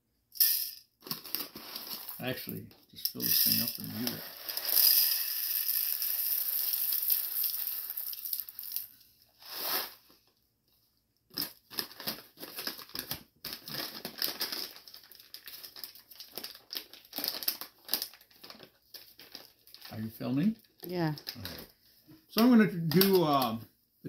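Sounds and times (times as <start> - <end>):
bag crinkling: 1.0 - 2.2, 3.8 - 4.8, 11.3 - 20.0
coffee beans pouring into hopper: 3.2 - 8.9.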